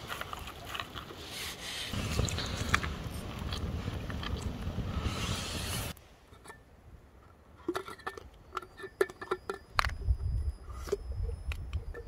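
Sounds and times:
wind rumbling on microphone: 0:01.9 - 0:06.0, 0:09.8 - 0:12.0.

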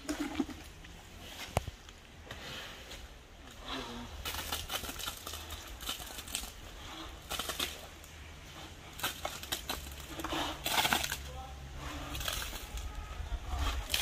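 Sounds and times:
wet concrete splattering: 0:04.2 - 0:12.9.

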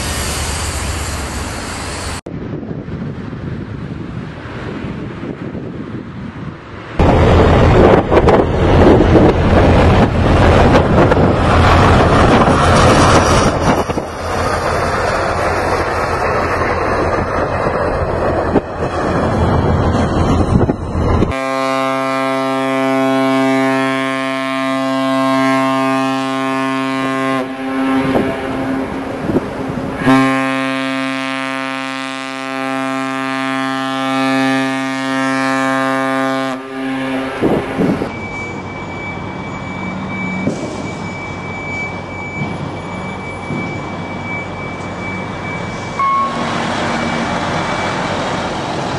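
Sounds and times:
ship's horn blasts: 0:21.2 - 0:38.4, 0:45.4 - 0:48.0.

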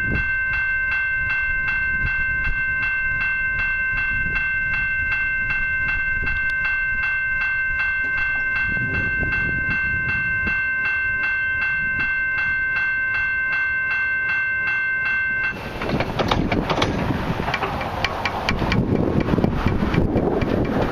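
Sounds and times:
level crossing bell ringing: 0:00.0 - 0:15.8.

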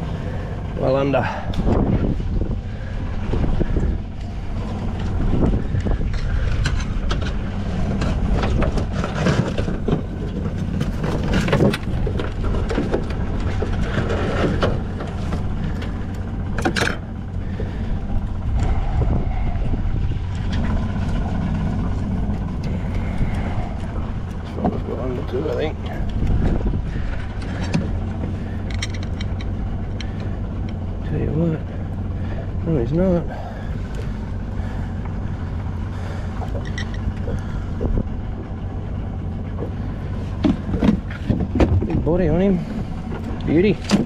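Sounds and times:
outboard motor rumbling: 0:00.0 - 0:44.0.

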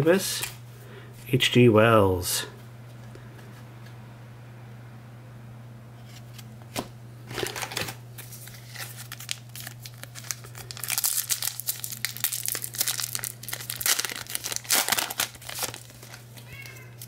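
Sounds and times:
foil wrapper tearing and crinkling: 0:07.3 - 0:17.0.

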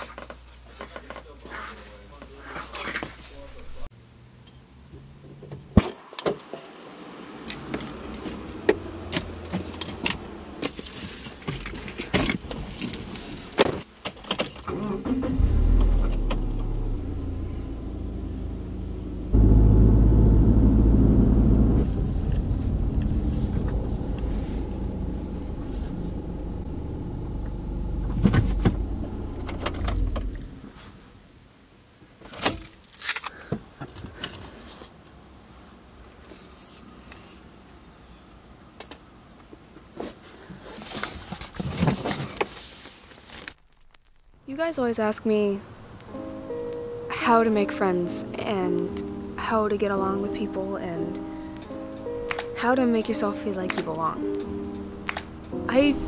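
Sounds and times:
car engine droning: 0:06.9 - 0:11.6, 0:14.7 - 0:31.1, 0:51.6 - 0:56.0
car keys jangling: 0:09.8 - 0:13.4, 0:14.0 - 0:14.7, 0:16.0 - 0:16.9, 0:32.6 - 0:33.3.

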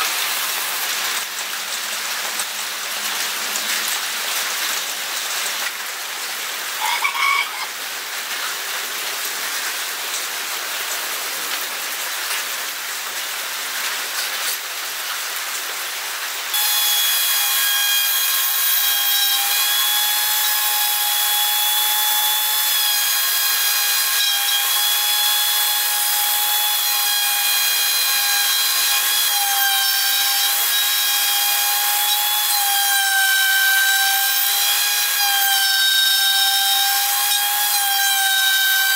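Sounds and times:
power tool whining cutting wood: 0:16.5 - 0:38.9.

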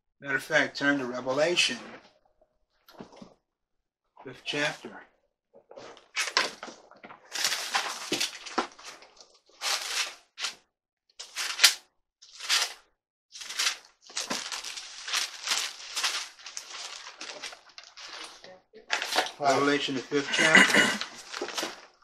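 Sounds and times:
pages turning and rustling: 0:05.7 - 0:10.6, 0:11.2 - 0:12.8, 0:13.4 - 0:22.0.

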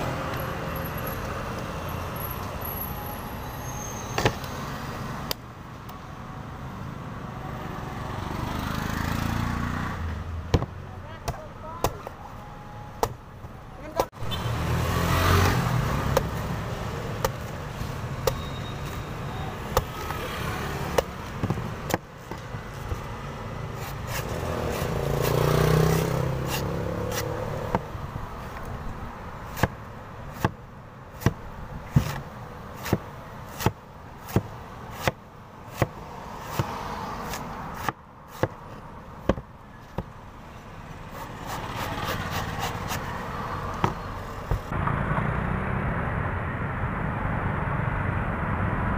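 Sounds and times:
street traffic passing: 0:00.0 - 0:48.9
knife chopping coconut on wood: 0:10.5 - 0:12.2, 0:15.4 - 0:16.4, 0:19.6 - 0:23.0, 0:23.8 - 0:27.9, 0:29.5 - 0:30.6, 0:31.2 - 0:40.2, 0:41.1 - 0:43.2, 0:43.8 - 0:44.7.

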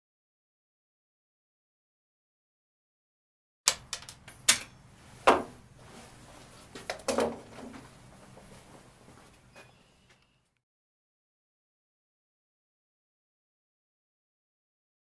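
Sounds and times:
rifle metallic clicks and clatters: 0:03.7 - 0:04.7
faint steady hum: 0:03.7 - 0:10.6.

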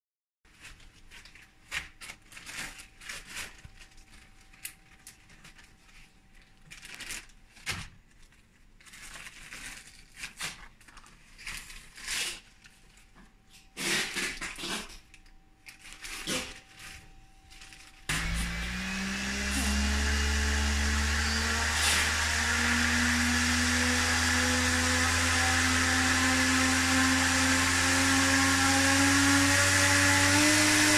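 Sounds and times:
electric motor humming: 0:18.1 - 0:30.9.

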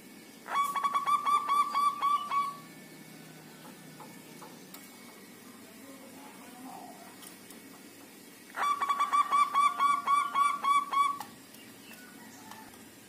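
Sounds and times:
dove cooing: 0:00.4 - 0:02.7, 0:08.5 - 0:12.7.

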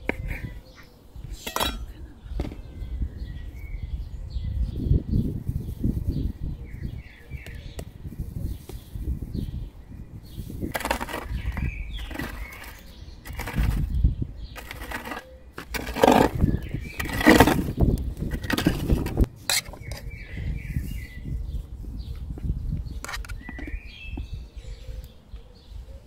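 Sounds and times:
birds chirping: 0:00.0 - 0:26.0
metal scraper raking embers: 0:01.4 - 0:02.0, 0:10.6 - 0:13.9, 0:14.6 - 0:20.2.

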